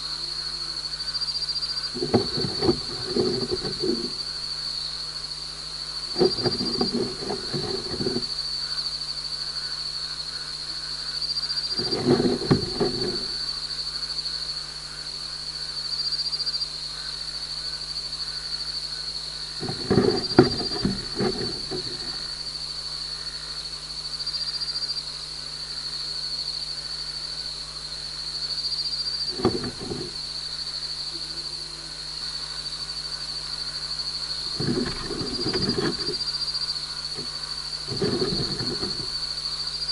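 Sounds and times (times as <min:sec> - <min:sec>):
gecko feet scraping on mesh: 0:02.0 - 0:04.2, 0:06.1 - 0:08.4, 0:11.7 - 0:13.4, 0:19.6 - 0:22.3, 0:29.3 - 0:30.2, 0:34.4 - 0:36.4, 0:37.1 - 0:39.3.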